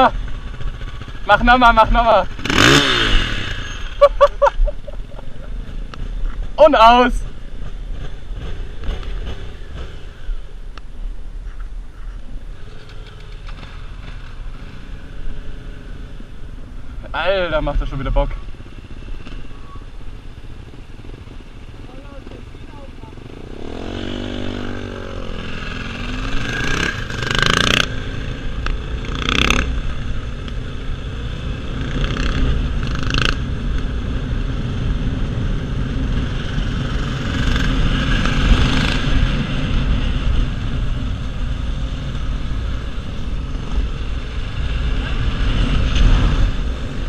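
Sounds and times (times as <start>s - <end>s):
motorcycle engine revving: 0.0s - 10.6s, 17.4s - 47.0s.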